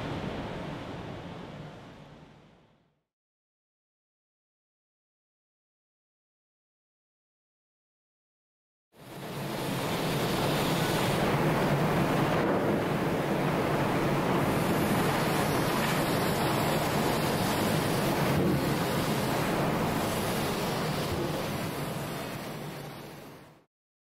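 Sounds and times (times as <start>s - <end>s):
large fire roaring: 9.1s - 23.3s.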